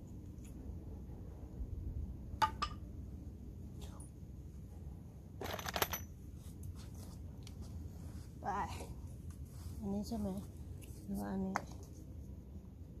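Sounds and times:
metal hardware clinking and rattling: 0:05.4 - 0:06.2.

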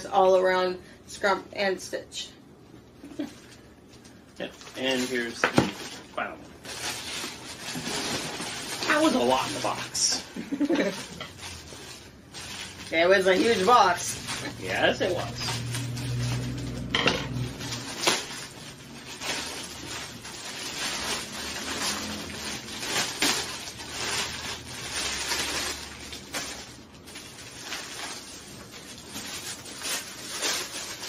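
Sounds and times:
plastic bag crinkling: 0:03.1 - 0:31.0.

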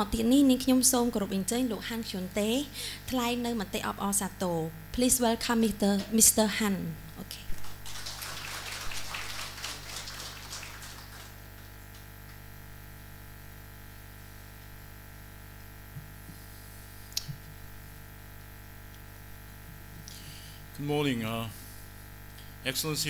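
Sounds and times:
electrical mains hum: 0:00.0 - 0:23.0
audience applauding: 0:07.5 - 0:11.8.

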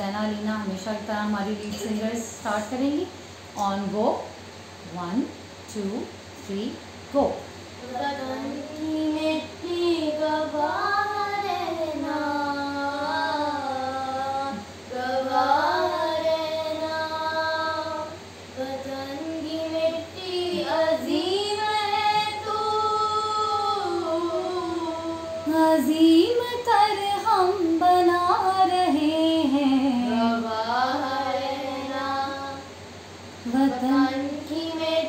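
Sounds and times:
girls singing together: 0:07.8 - 0:32.8, 0:33.4 - 0:35.0.

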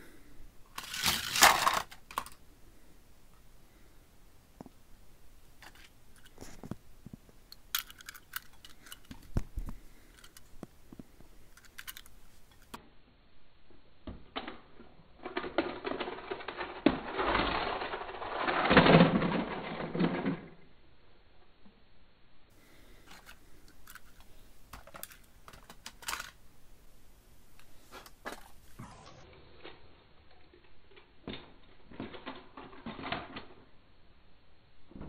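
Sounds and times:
toy train rattling on track: 0:00.8 - 0:02.4, 0:07.7 - 0:09.3, 0:11.6 - 0:12.8, 0:15.2 - 0:20.6.

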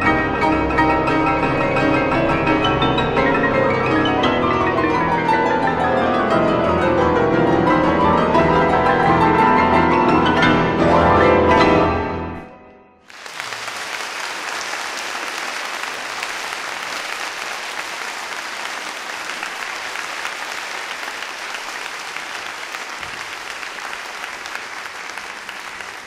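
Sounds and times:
audience applauding: 0:13.1 - 0:26.0.

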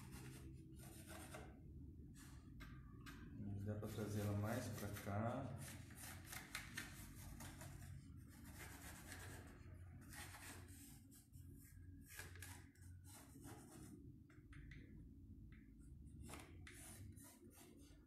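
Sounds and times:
pencil scratching on wood: 0:00.0 - 0:01.6, 0:03.9 - 0:14.0, 0:16.2 - 0:18.0.

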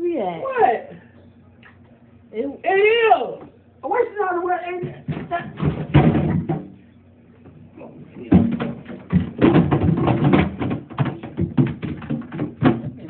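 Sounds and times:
items knocking in fridge drawer: 0:04.8 - 0:06.8, 0:08.0 - 0:13.0.

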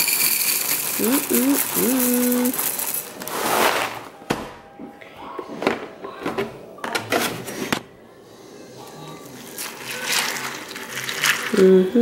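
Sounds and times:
cereal pouring into bowl: 0:00.0 - 0:04.0, 0:09.4 - 0:11.6.

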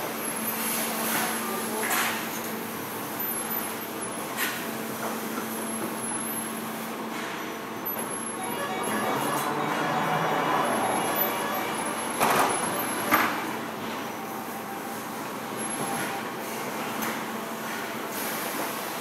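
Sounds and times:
machine hum: 0:07.7 - 0:16.1.

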